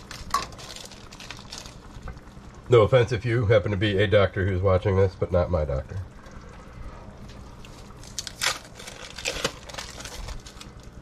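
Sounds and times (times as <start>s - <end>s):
plastic bag crinkling: 0.0s - 2.0s, 7.6s - 11.0s
steady low hum: 0.0s - 11.0s.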